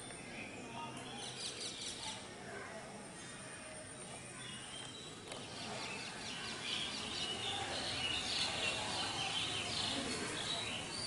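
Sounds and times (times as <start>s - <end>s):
outdoor background noise: 0.0s - 11.0s
birds chirping: 3.9s - 11.0s.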